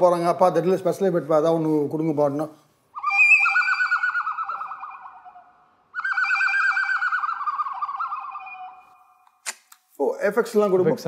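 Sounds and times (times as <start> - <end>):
warbling whistle trill: 3.0 - 9.4.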